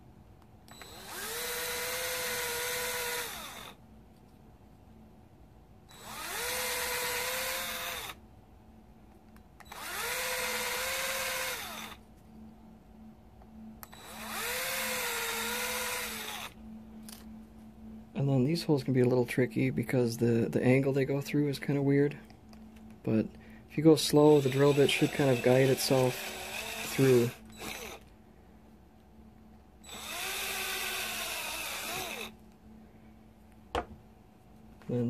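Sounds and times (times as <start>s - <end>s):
cordless drill whining: 0.7s - 3.8s, 5.9s - 8.2s, 9.6s - 12.0s, 13.8s - 17.2s, 24.2s - 28.1s, 29.8s - 32.4s
drill bit drilling into plastic: 0.7s - 3.8s, 5.9s - 8.2s, 9.6s - 12.0s, 13.8s - 16.6s, 24.3s - 28.0s, 29.8s - 32.3s.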